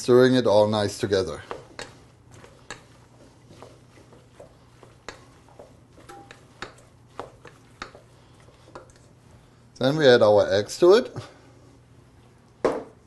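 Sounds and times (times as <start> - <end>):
low steady hum: 0.0 - 13.0
wooden spoon scraping a metal bowl: 0.6 - 9.5.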